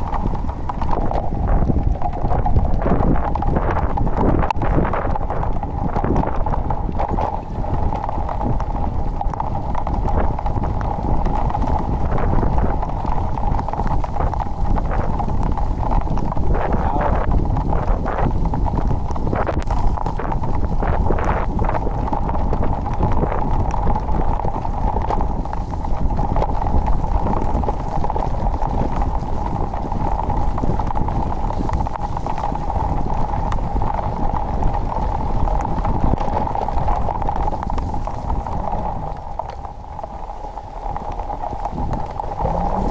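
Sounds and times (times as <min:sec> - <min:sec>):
wheels rattling over cobblestones: 0:00.0 - 0:42.9
high hum: 0:42.3 - 0:42.9.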